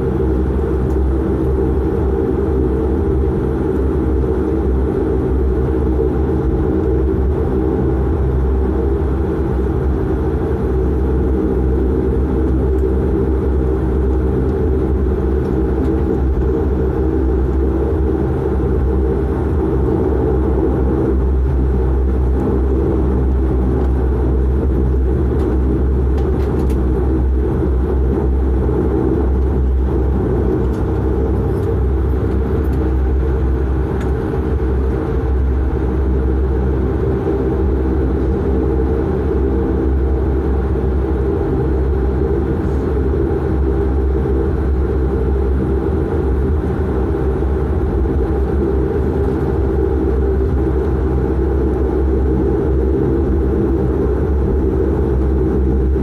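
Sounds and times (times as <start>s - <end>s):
turboprop engine drone: 0.0s - 56.0s.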